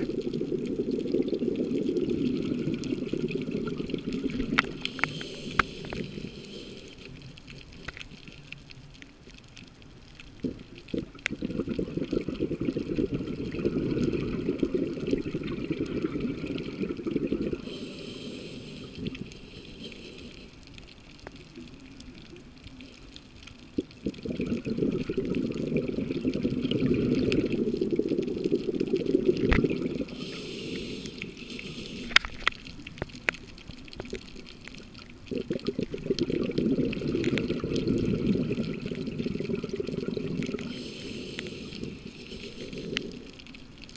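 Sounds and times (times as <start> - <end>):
bubbling exhalations underwater: 0.0 - 6.4, 10.4 - 18.0, 23.6 - 32.5, 35.0 - 43.6
regulator hissing inhalation: 4.6 - 7.2, 17.3 - 20.6, 29.8 - 32.4, 40.2 - 43.4.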